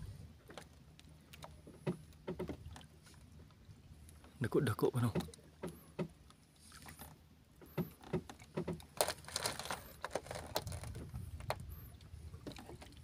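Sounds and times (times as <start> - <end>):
water splashing and lapping: 0.0 - 13.0
small clicks and knocks: 7.0 - 11.6.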